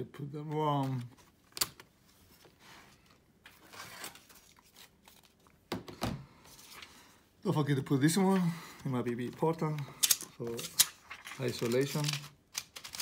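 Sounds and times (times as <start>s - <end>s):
plastic parts clicking: 10.0s - 13.0s.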